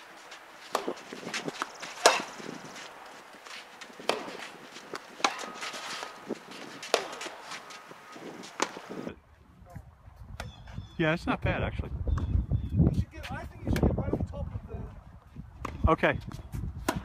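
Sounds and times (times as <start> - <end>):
footsteps: 0.0 - 9.1
tennis ball struck by rackets: 0.6 - 9.0, 16.8 - 17.0.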